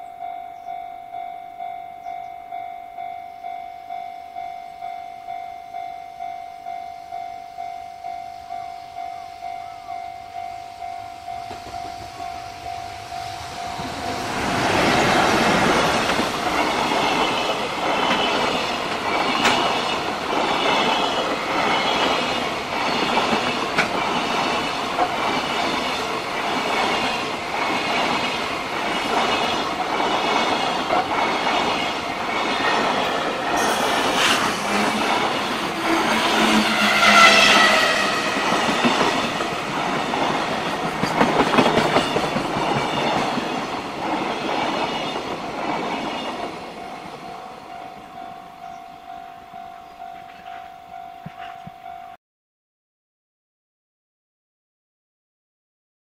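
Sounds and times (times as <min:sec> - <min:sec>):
train wheels rumbling on rail: 0:06.2 - 0:48.8
wheel squeal: 0:33.6 - 0:35.0.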